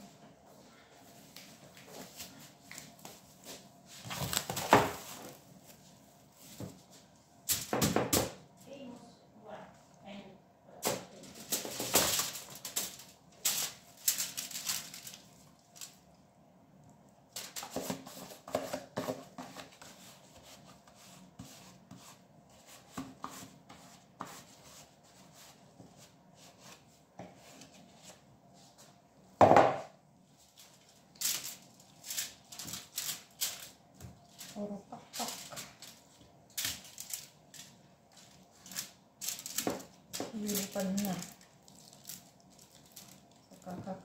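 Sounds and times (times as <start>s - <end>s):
aluminium foil crinkling: 4.0s - 5.4s, 11.0s - 16.2s, 17.3s - 18.5s, 30.4s - 44.0s.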